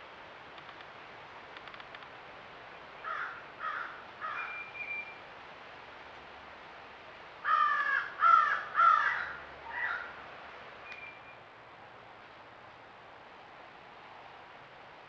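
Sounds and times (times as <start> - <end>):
crow cawing: 3.0 - 4.5, 7.4 - 10.2.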